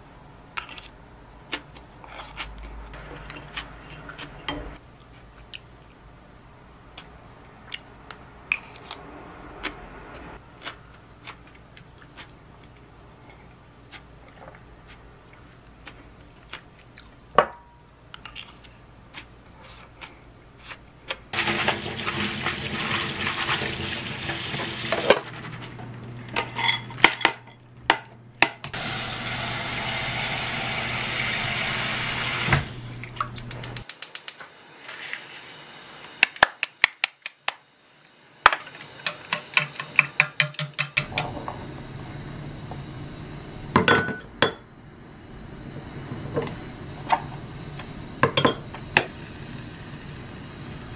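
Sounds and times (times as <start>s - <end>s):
water running into sink: 21.4s - 25.1s, 28.8s - 32.7s
dishes clattering: 43.8s - 44.6s.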